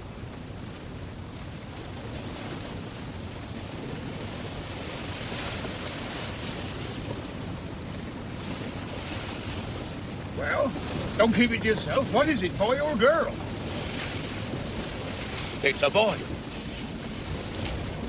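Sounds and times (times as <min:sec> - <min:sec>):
rush of sea: 0:00.0 - 0:18.0
wind: 0:00.0 - 0:18.0.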